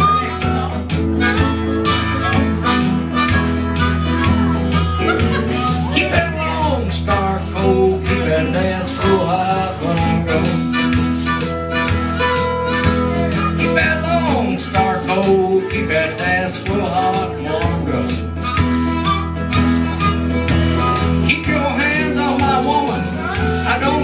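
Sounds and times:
harmonica playing lead: 0.0s - 24.0s
steady bass: 0.0s - 24.0s
strummed guitar: 0.0s - 24.0s.

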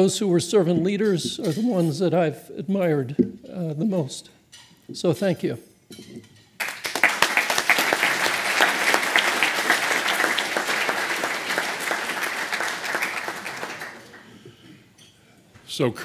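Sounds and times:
audience applauding: 6.6s - 14.6s.

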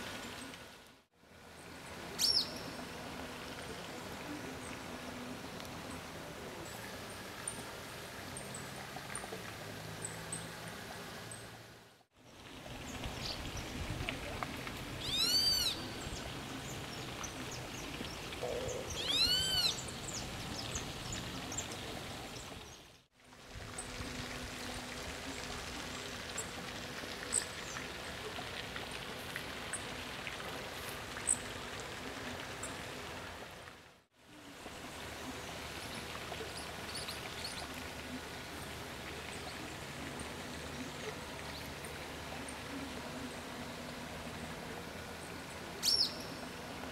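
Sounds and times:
bird call rising and falling: 15.0s - 15.9s, 18.4s - 19.8s.

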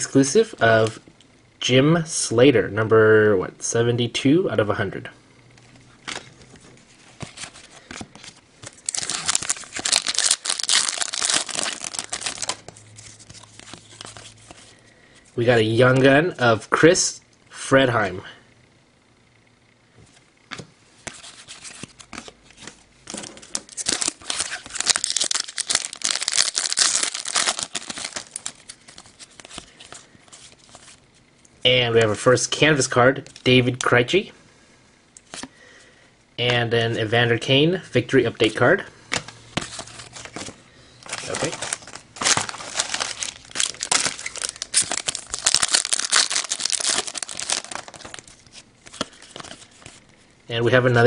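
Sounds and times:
foil wrapper crinkling: 7.4s - 14.8s, 23.1s - 31.0s, 39.6s - 50.0s.

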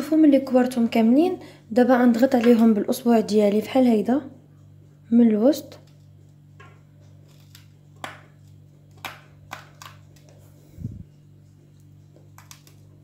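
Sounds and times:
steady low hum: 0.0s - 13.0s
finger tapping dough: 8.0s - 10.2s.

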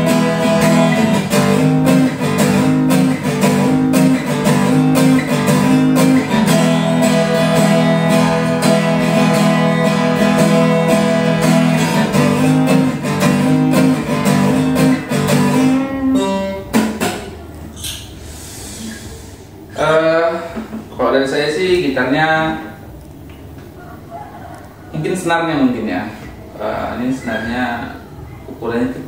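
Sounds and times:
acoustic guitar strumming: 0.0s - 18.2s.

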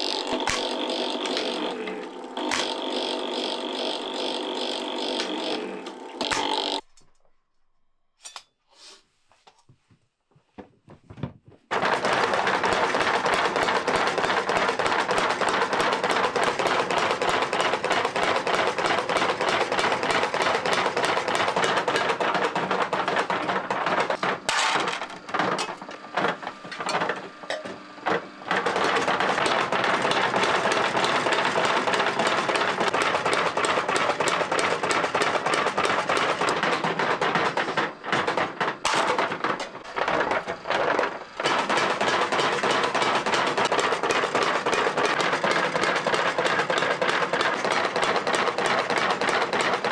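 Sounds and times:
power hammer striking metal: 0.0s - 6.6s.

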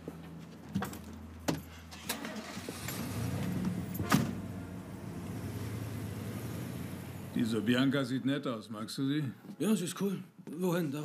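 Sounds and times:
low vehicle rumble: 2.5s - 8.1s
van door slamming shut: 3.6s - 4.5s.

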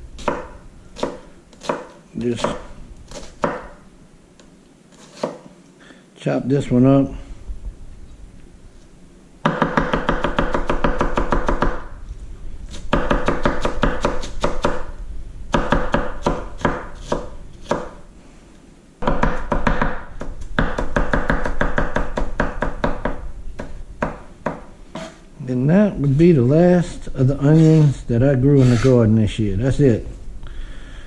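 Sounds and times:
knife chopping onion: 0.2s - 3.8s, 9.5s - 11.9s, 12.7s - 14.9s, 15.5s - 18.0s, 19.0s - 25.2s.

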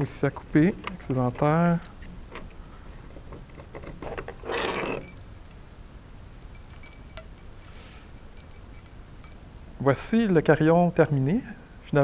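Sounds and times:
metal wind chime tinkling: 4.5s - 9.9s.

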